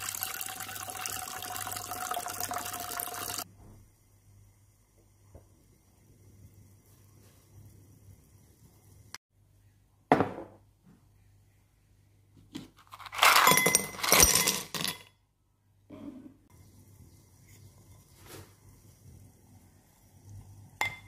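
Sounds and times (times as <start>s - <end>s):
ice cubes clinking against glass: 12.9s - 15.1s.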